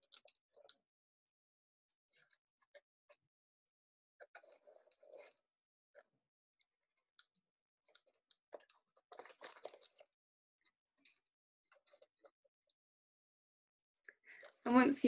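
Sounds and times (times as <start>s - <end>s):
paper rustling and crinkling: 7.8s - 10.2s.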